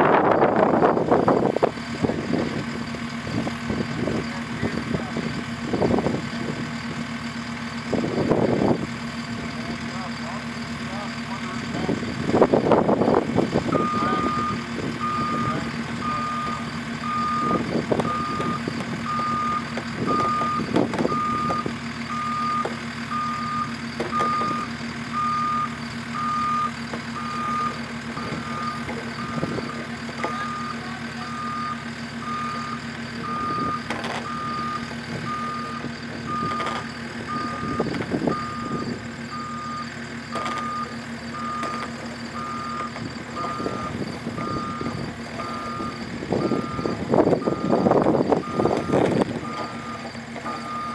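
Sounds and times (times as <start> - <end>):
skid steer idling: 0.0 - 50.9
alarm beeping: 13.1 - 50.9.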